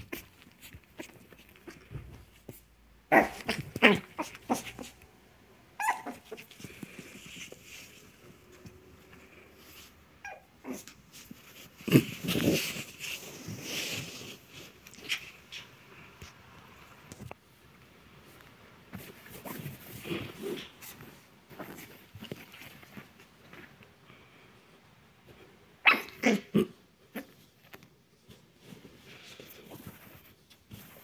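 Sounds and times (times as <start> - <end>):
puppy growling and yapping: 3.1 - 5.0, 5.8 - 6.8, 10.2 - 12.9, 25.8 - 27.4.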